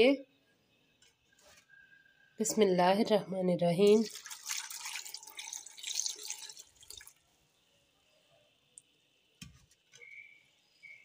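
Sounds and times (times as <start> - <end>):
milk pouring and splashing: 3.8 - 7.3.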